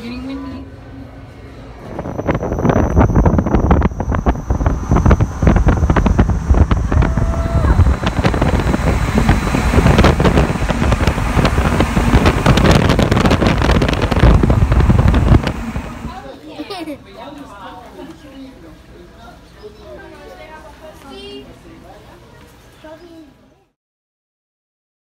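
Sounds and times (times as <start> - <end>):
car running noise: 1.8 - 16.1
wind buffeting microphone: 1.8 - 16.2.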